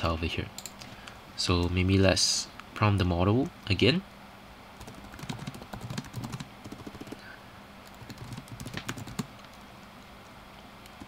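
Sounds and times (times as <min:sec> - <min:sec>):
typing on keyboard: 0:04.8 - 0:07.2, 0:07.8 - 0:09.6.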